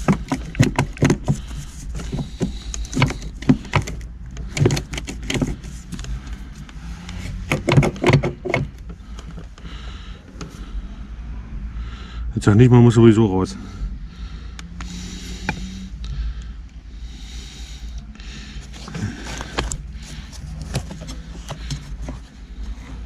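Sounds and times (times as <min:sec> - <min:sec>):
steady low hum: 0:08.3 - 0:23.0.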